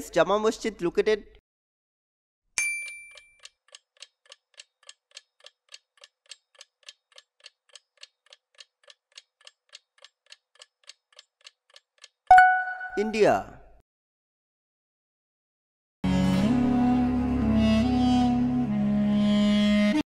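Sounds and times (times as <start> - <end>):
clock-like timer ticking: 3.2 - 12.5.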